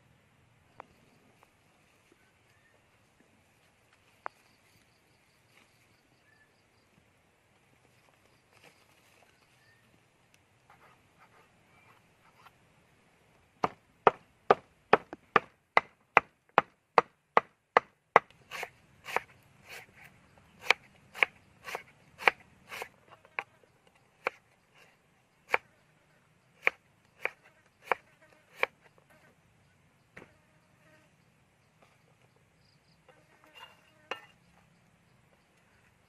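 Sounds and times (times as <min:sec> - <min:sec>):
knife chopping on wooden board: 0:17.4 - 0:19.8, 0:20.6 - 0:22.9, 0:26.6 - 0:28.7.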